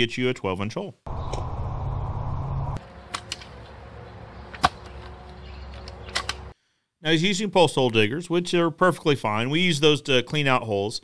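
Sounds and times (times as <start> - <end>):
outdoor background noise: 0.8 - 10.9
post hole digger striking soil: 4.4 - 5.2.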